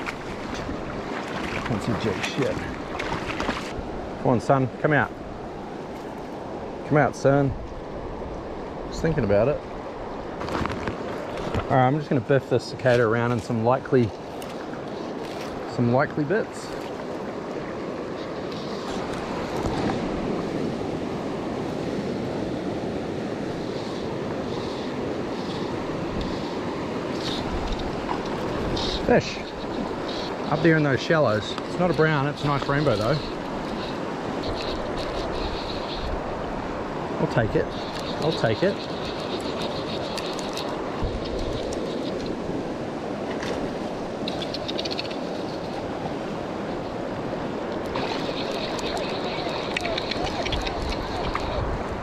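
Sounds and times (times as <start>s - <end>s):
river rushing: 0.0s - 52.0s.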